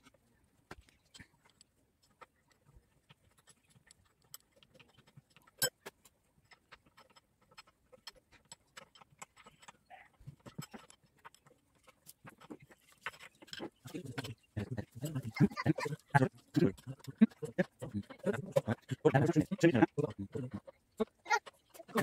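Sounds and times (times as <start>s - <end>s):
tools clicking on metal parts: 3.3s - 15.3s.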